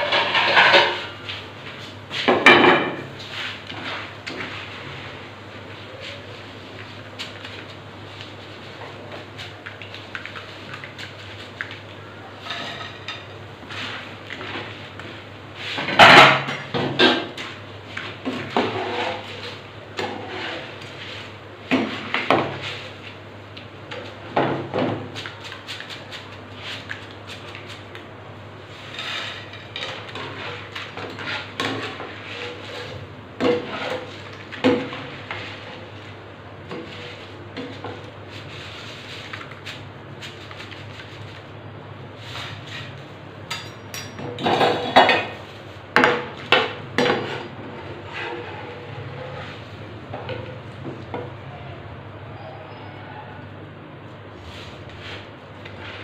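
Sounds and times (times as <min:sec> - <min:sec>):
metal utensils clattering on cookware: 0:00.0 - 0:01.1, 0:12.4 - 0:13.3, 0:43.5 - 0:45.4.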